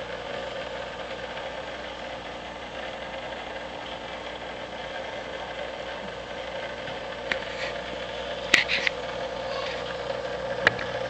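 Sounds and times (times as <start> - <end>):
aquarium pump humming: 0.0 - 11.0.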